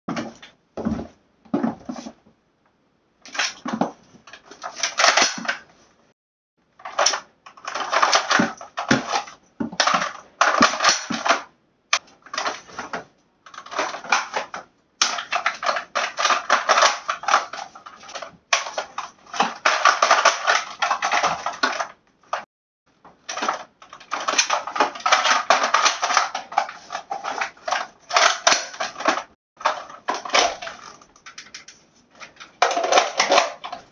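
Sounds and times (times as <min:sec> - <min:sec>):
rustling and crinkling of gear: 0:12.0 - 0:33.9.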